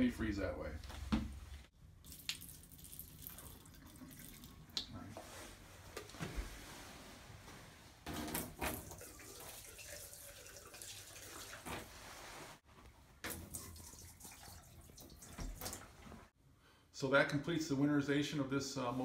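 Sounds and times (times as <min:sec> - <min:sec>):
liquid sloshing in toilet bowl: 0:02.0 - 0:05.4, 0:08.2 - 0:12.4, 0:13.2 - 0:16.3.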